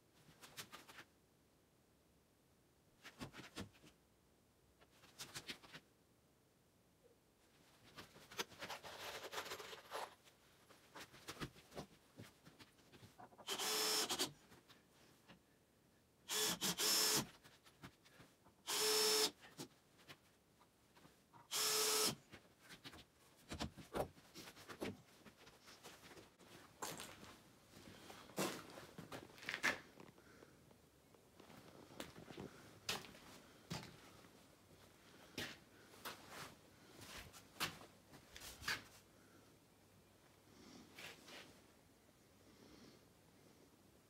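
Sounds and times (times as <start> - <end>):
cordless drill motor whine: 13.5 - 14.3, 16.3 - 17.2, 18.7 - 19.3, 21.5 - 22.2.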